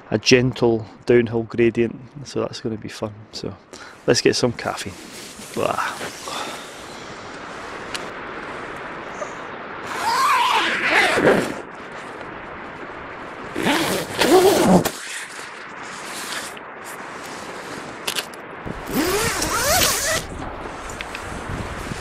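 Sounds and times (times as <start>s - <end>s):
tent zip being pulled: 9.8s - 11.7s, 13.5s - 20.3s.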